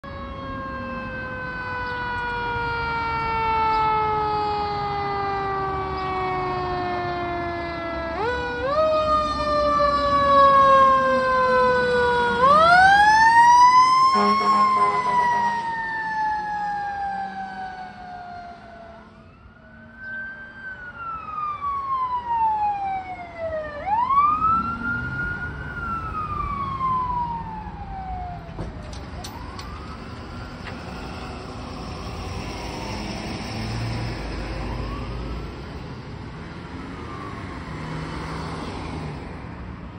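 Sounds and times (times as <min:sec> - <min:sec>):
fire truck siren wailing: 0:00.0 - 0:39.9
road noise: 0:00.0 - 0:39.9
truck engine: 0:09.0 - 0:39.3.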